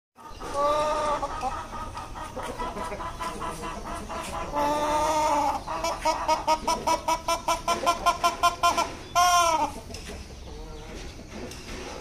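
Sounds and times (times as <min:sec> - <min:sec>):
hen clucking: 0:00.2 - 0:12.0.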